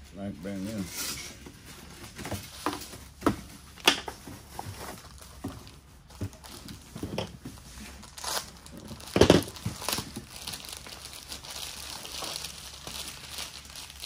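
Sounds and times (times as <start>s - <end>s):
plastic packaging crinkling: 4.2s - 14.0s.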